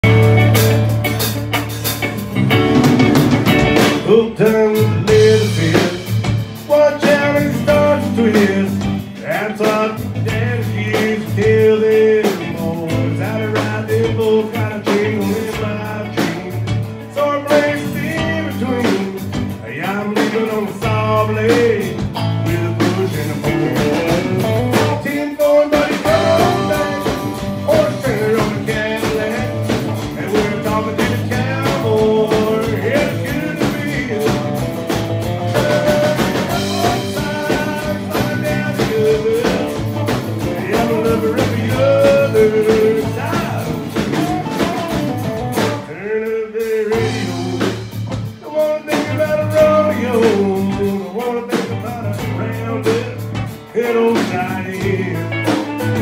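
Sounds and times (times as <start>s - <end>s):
country band playing: 0.0s - 56.0s
person singing lead: 24.7s - 34.6s, 35.4s - 39.9s.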